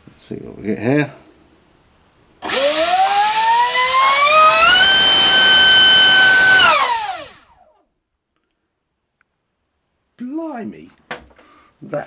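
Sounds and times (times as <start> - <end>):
brushless motor whine: 2.4 - 7.5.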